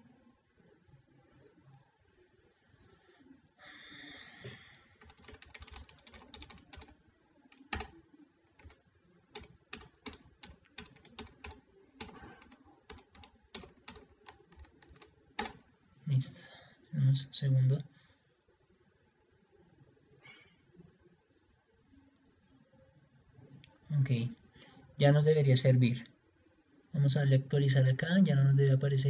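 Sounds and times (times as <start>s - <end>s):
computer keyboard typing: 4.4s - 8.0s, 8.6s - 15.6s.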